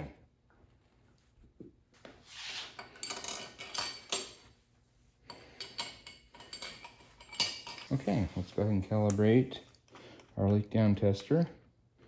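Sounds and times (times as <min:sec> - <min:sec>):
metal parts clinking and scraping: 0:02.8 - 0:04.4, 0:05.3 - 0:08.2.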